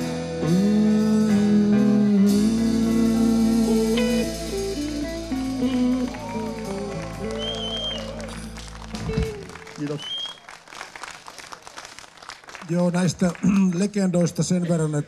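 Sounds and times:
electric guitar lead with bent notes: 0:00.0 - 0:09.8
bass and drums: 0:00.0 - 0:10.1.

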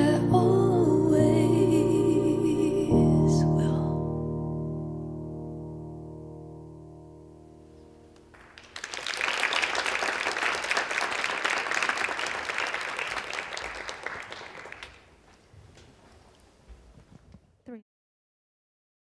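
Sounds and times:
music held chord: 0:00.0 - 0:08.2
audience applause: 0:08.3 - 0:15.3.

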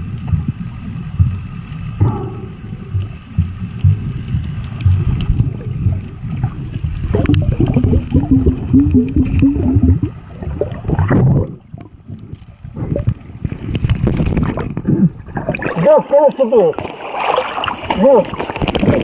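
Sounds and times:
underwater sloshing rumble: 0:00.0 - 0:19.0
wavering low hum: 0:02.0 - 0:13.3.

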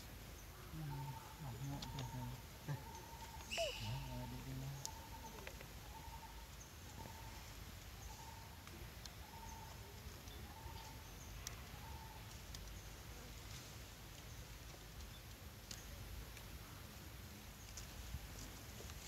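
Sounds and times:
faint clicks: 0:12.3 - 0:12.8.

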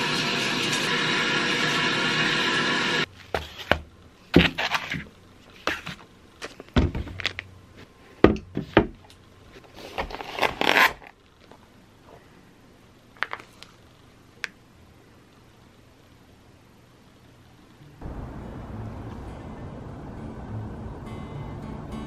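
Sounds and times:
plastic packets crinkling: 0:13.2 - 0:13.8.

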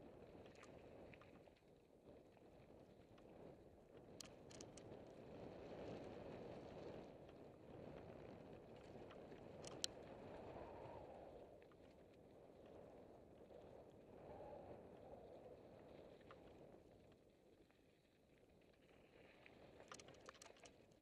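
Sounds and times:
wind: 0:00.0 - 0:21.0
sharp clicks from stones: 0:04.2 - 0:04.9, 0:09.6 - 0:09.9, 0:19.7 - 0:21.0.

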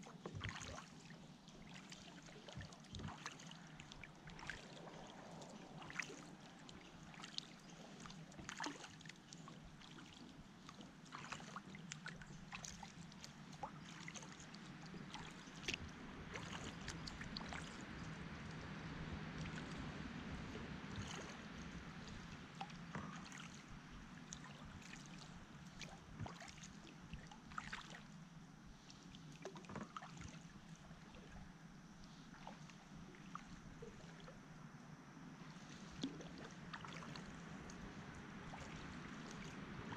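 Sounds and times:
paddle splashing water: 0:00.0 - 0:39.9.

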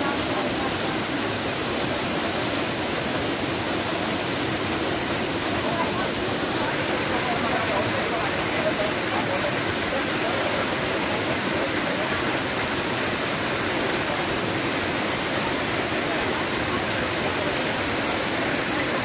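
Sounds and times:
waterfall pouring into pool: 0:00.0 - 0:19.0.

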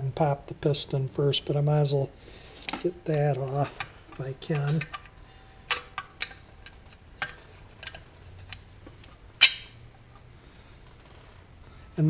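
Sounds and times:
screwdriver clicking on metal parts: 0:03.5 - 0:08.7.

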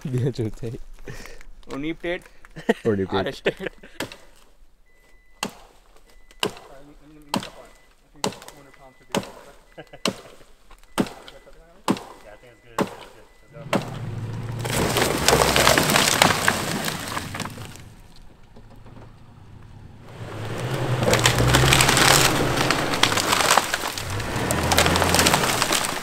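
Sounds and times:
tree branches scraping and snapping: 0:12.9 - 0:18.8, 0:20.0 - 0:26.0.

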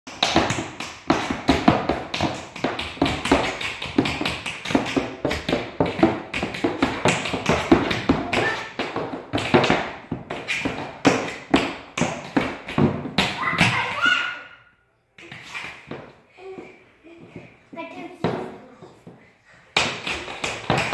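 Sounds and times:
tap dancing on hard floor: 0:00.1 - 0:13.9, 0:19.8 - 0:20.9.

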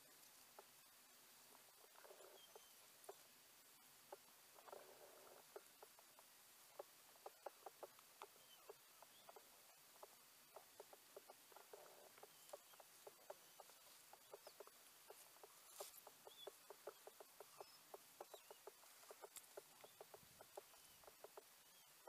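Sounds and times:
faint high bird chirps: 0:01.8 - 0:03.2, 0:06.8 - 0:09.8, 0:10.5 - 0:22.0
soft ticks: 0:04.1 - 0:21.6.

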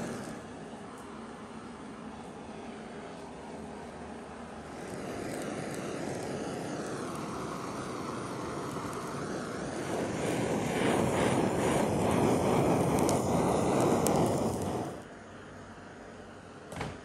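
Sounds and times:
kitchen torch flame hissing: 0:00.0 - 0:15.3.

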